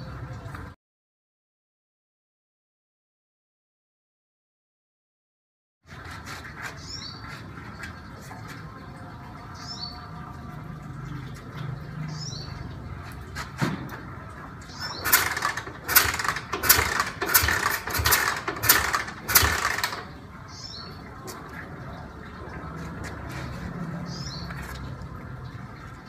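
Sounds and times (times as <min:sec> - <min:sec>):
engine kick-start puffs: 0:14.8 - 0:20.2.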